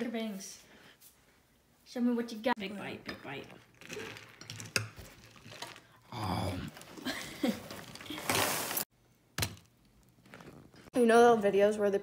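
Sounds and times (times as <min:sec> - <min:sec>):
non-word vocal sounds: 0:05.9 - 0:06.9.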